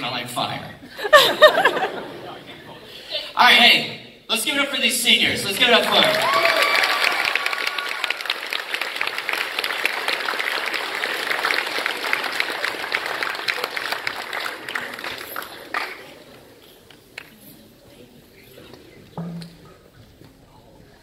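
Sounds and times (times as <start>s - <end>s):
applause: 5.8s - 16.4s.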